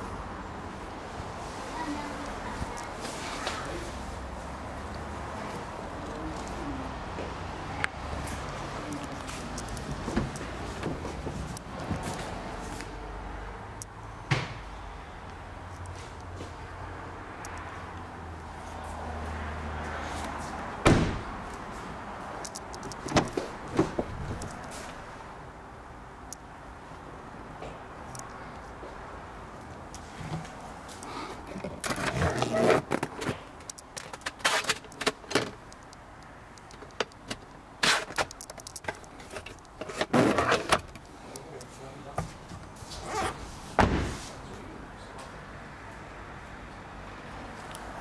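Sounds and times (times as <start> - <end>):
car door clunks: 20.8 - 21.3, 43.8 - 44.2
car door slam: 20.8 - 21.3, 43.8 - 44.3.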